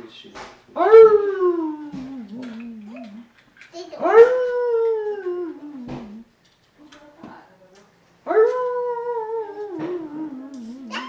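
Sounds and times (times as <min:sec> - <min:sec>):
dog howling: 0:00.8 - 0:03.3, 0:04.0 - 0:06.2, 0:08.3 - 0:11.0.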